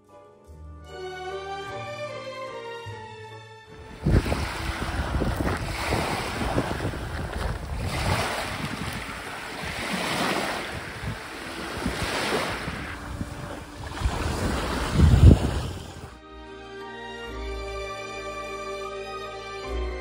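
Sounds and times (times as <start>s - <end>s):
wind buffeting microphone: 3.7s - 16.2s
small waves lapping on pebbles: 3.8s - 16.1s.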